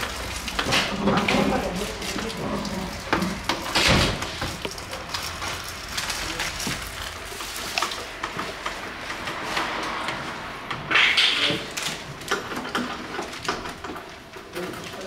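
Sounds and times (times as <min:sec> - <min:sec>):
plastic wrapping crinkling: 0:00.0 - 0:10.0.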